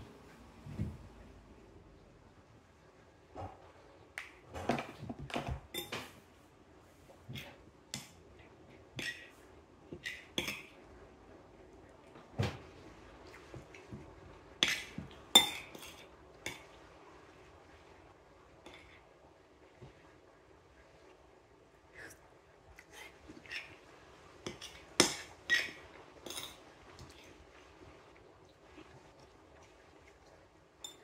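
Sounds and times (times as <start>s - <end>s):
metal spoon scraping ceramic plate: 24.5s - 26.6s.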